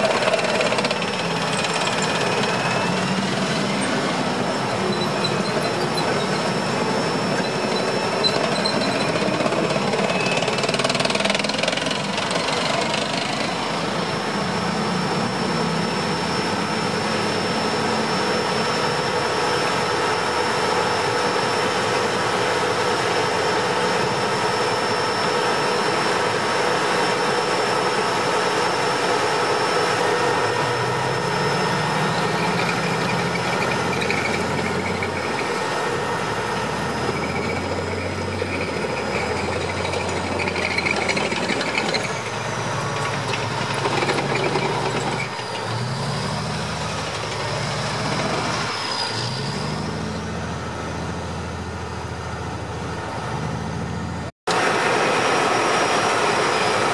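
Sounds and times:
deep diesel rumble: 0.0s - 56.9s
tracked vehicle engine: 0.0s - 56.9s
steel tracks clattering: 36.6s - 45.9s.

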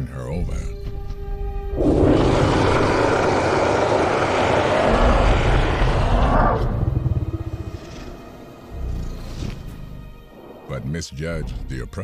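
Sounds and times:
rumbling creature growl: 1.7s - 10.2s.

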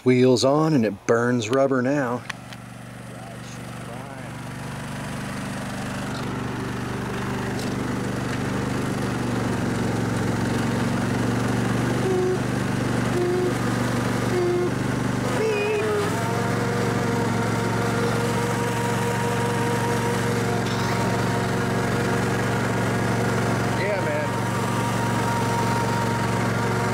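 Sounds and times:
riding mower engine running: 0.0s - 26.9s
steady higher whine: 0.7s - 26.9s
short higher tones: 11.9s - 16.4s.

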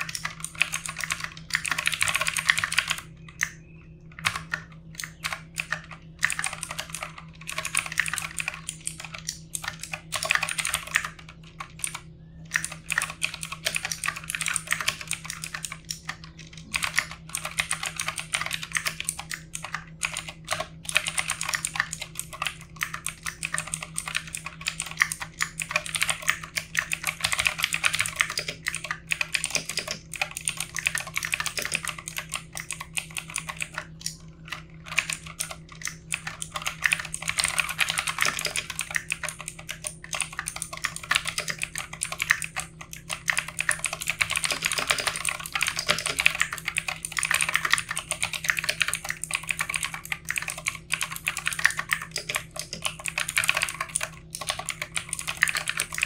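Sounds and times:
mechanical keyboard typing: 0.0s - 3.5s, 4.1s - 56.0s.

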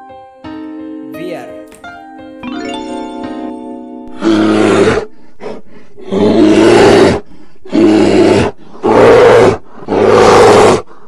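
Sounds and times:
bear roaring: 4.2s - 11.0s.

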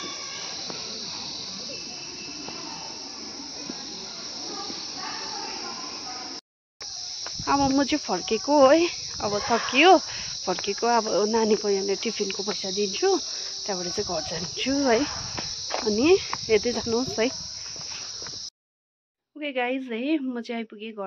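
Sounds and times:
insects shrilling: 0.0s - 18.5s
person's voice: 7.5s - 15.1s, 15.8s - 17.4s.

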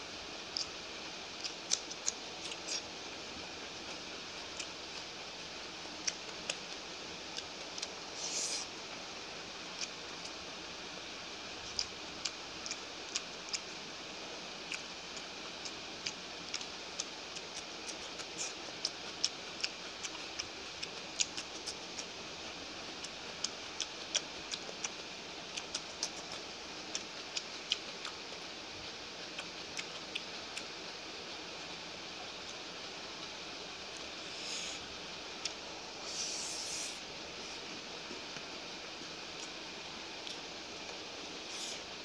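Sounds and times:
steady hiss: 0.0s - 42.0s
chewing smacks: 1.4s - 2.9s, 14.7s - 22.2s, 23.0s - 28.3s, 29.3s - 30.7s.

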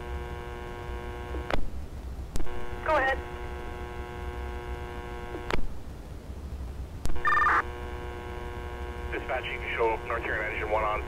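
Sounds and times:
radio electrical hum: 0.0s - 11.0s
high radio tones: 2.4s - 5.5s, 7.1s - 11.0s
sharp radio clicks: 5.3s - 5.6s.

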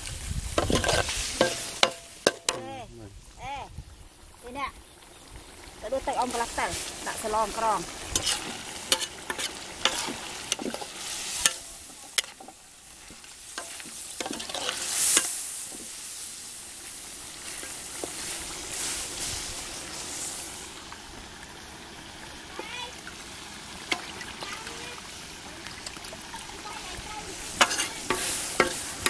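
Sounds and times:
stew sizzling: 0.0s - 29.0s
metal spatula scraping wok: 0.5s - 2.6s, 6.4s - 20.6s, 27.3s - 29.0s
burst of hissing: 6.4s - 20.9s.

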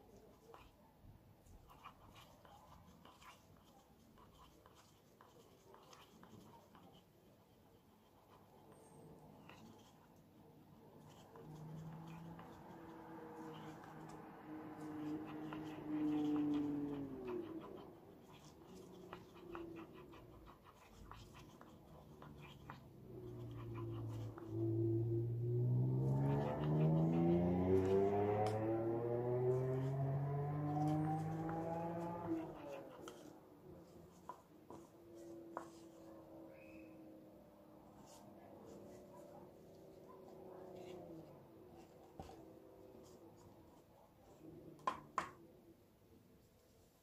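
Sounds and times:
stir stick scraping paper cup: 1.6s - 10.2s, 11.0s - 24.8s, 30.6s - 36.2s
low steady hum: 10.4s - 43.7s.

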